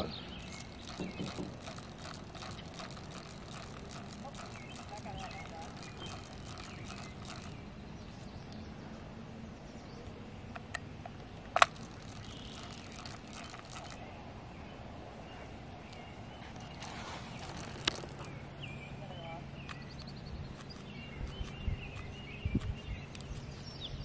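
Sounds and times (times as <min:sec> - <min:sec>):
sharp clicks: 0:00.0 - 0:08.6, 0:10.5 - 0:14.1, 0:15.9 - 0:18.4, 0:19.6 - 0:23.4
outdoor hiss and rumble: 0:00.0 - 0:24.0.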